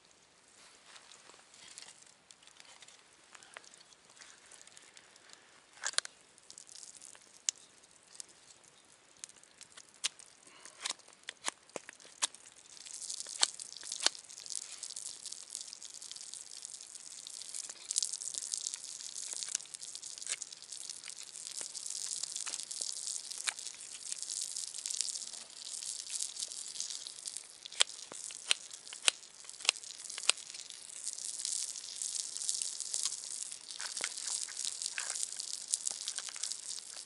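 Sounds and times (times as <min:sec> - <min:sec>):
campfire crackling: 0:00.0 - 0:37.0.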